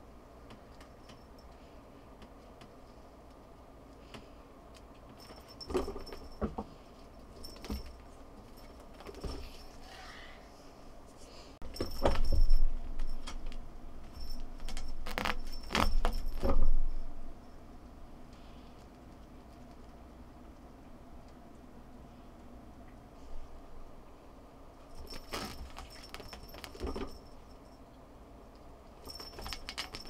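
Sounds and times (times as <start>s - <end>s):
small bell jingling: 5.2s - 6.4s, 7.3s - 9.8s, 11.6s - 17.0s, 24.8s - 27.8s, 29.0s - 30.0s.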